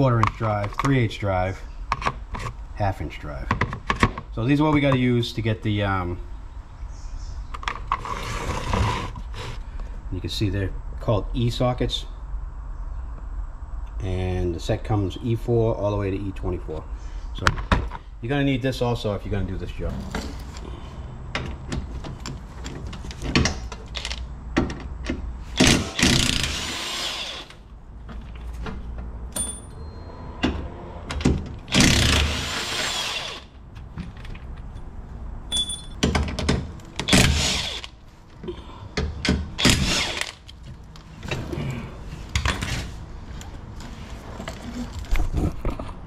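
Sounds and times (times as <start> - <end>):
power tool driving bolts: 21.3 - 27.6, 30.4 - 33.5, 36.0 - 38.0, 39.0 - 40.6
metal clanks of tools: 35.5 - 36.6.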